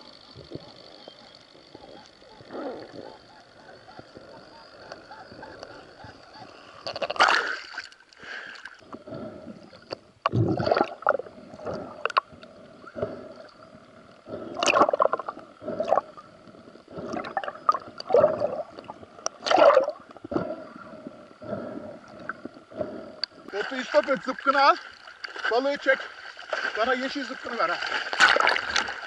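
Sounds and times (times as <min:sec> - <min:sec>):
water gurgling and bubbling: 0:08.8 - 0:24.7, 0:25.4 - 0:29.0.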